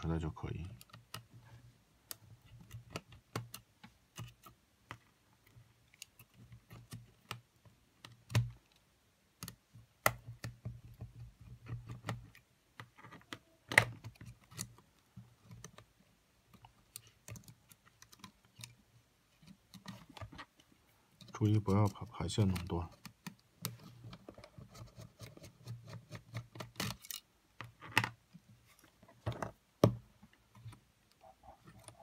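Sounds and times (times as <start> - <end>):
fingers clicking and tapping electronics: 0.5 - 1.3, 2.0 - 8.8, 9.4 - 23.8.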